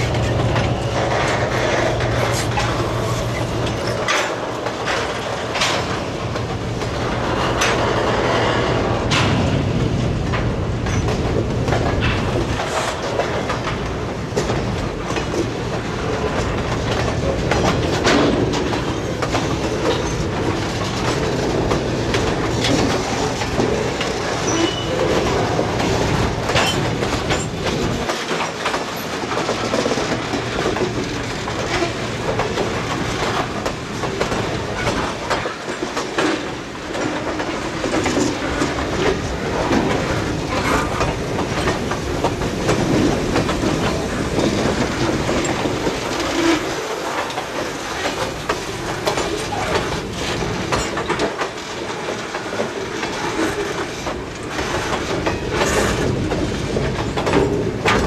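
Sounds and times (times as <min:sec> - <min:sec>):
locomotive engine hum: 0:00.0 - 0:35.5
train wheels clacking over rail joints: 0:00.0 - 0:58.0.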